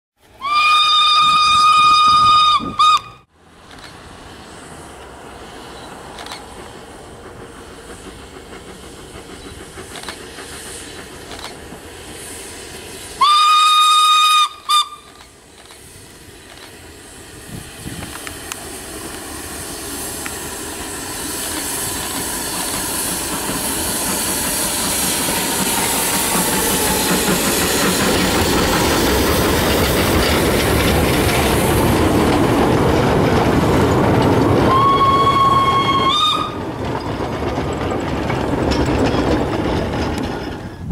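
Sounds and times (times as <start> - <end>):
steam locomotive whistle: 0.2 - 3.3, 13.0 - 15.3, 34.6 - 36.6
train passing: 0.2 - 40.9.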